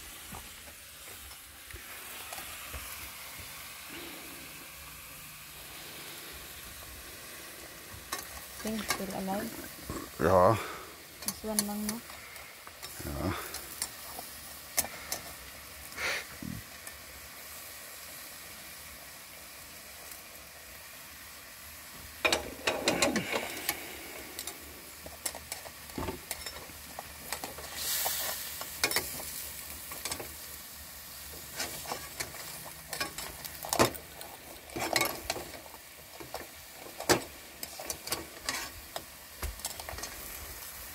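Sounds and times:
faint steady sizzle: 0:00.0 - 0:40.9
metal spatula scraping steel pan: 0:38.4 - 0:38.8.

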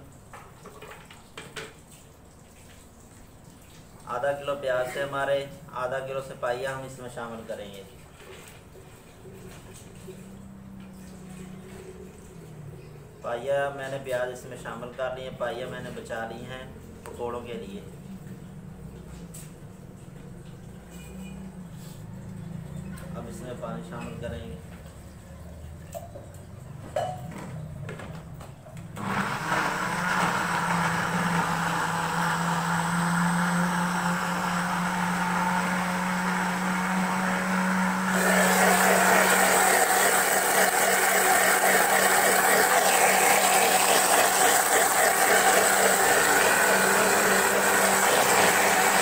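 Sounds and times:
blender grinding: 0:28.9 - 0:49.0.

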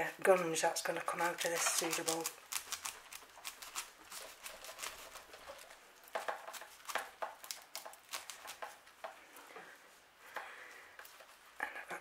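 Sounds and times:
knife cutting plant: 0:01.2 - 0:05.7, 0:06.3 - 0:08.7.

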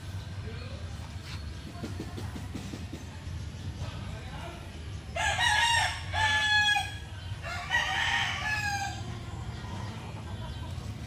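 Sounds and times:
rooster crowing: 0:05.2 - 0:09.1.

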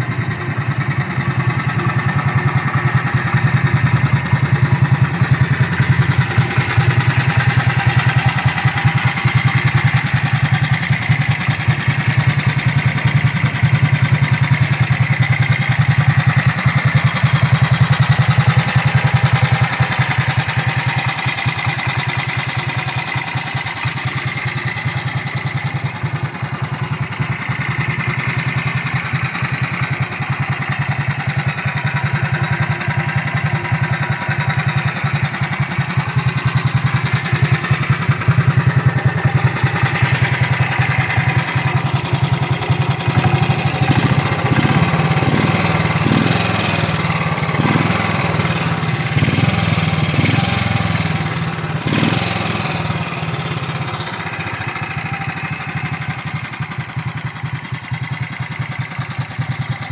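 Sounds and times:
motorcycle engine idling: 0:00.0 - 0:59.9
motorcycle engine revving: 0:00.0 - 0:59.9.

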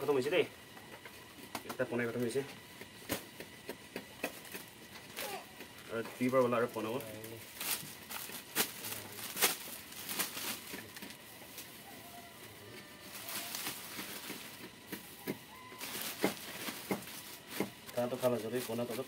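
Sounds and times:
plastic bag crinkling: 0:06.2 - 0:11.8, 0:13.0 - 0:19.0
faint bird calls: 0:15.1 - 0:16.4.

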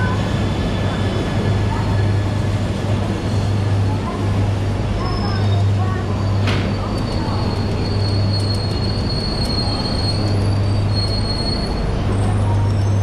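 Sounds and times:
train wheels and brakes squealing: 0:05.0 - 0:13.0.

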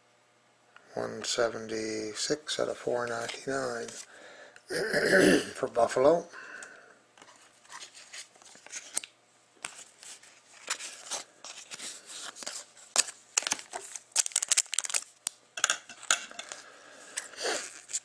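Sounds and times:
cards and foil packs rustling: 0:07.2 - 0:18.0.

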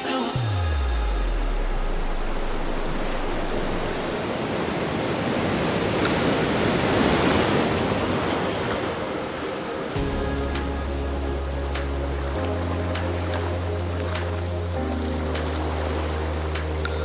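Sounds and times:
ocean waves breaking: 0:00.1 - 0:17.0.

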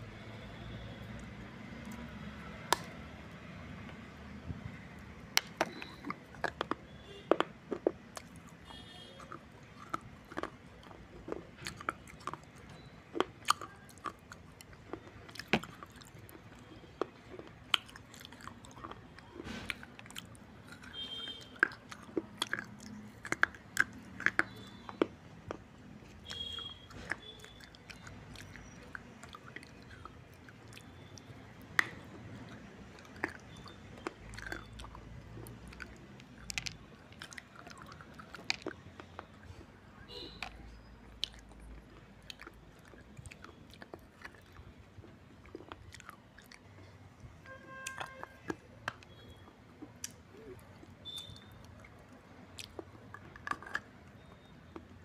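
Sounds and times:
teeth crunching dry clay: 0:00.0 - 0:55.0.

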